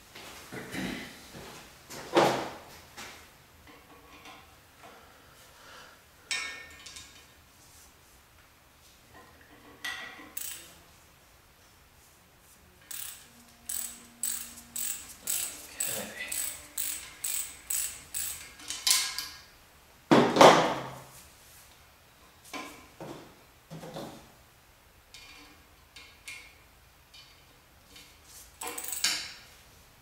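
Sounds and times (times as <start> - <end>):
hand ratchet clicking: 10.4 - 10.7, 12.9 - 19.2, 28.6 - 29.3
metal rasp: 12.9 - 18.5.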